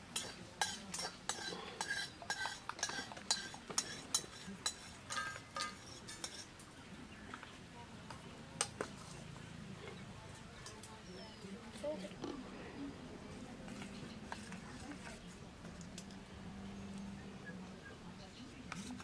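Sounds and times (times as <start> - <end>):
metal spatula scraping a steel pan: 0.1 - 6.5.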